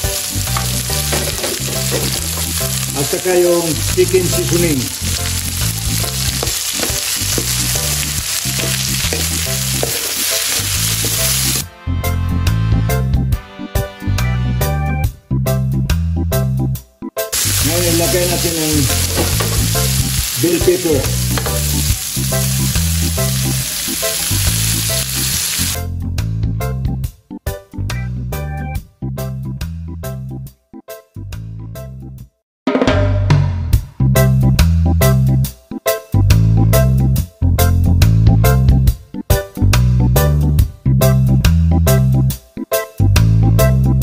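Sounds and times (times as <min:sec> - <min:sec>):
vegetables sizzling in oil: 0:00.0 - 0:11.6, 0:17.4 - 0:25.8
background music: 0:00.0 - 0:44.0
metal spatula stirring in wok: 0:08.4 - 0:11.5.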